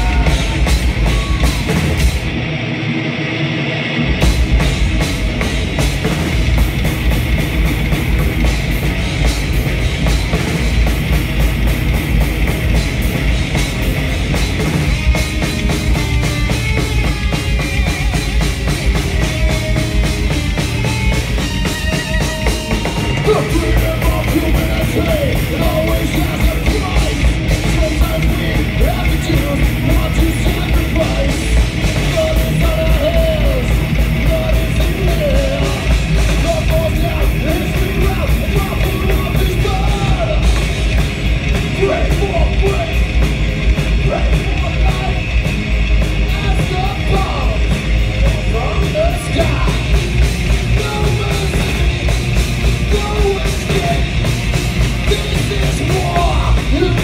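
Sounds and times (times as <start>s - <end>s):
fast drumming: 0.0s - 2.5s, 4.0s - 57.0s
bass guitar: 0.0s - 57.0s
distorted electric guitars: 0.0s - 57.0s.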